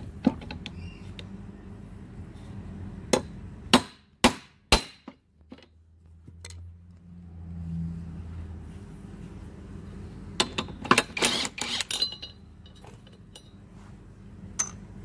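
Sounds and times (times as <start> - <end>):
small metal parts clinking: 10.4 - 13.6, 14.6 - 14.9.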